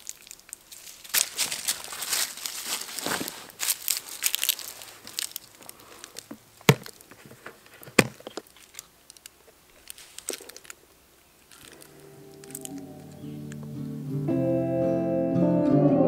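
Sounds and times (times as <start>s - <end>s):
dry leaves rustling underfoot: 0.0s - 14.3s
hands handling a hard case: 6.0s - 8.9s.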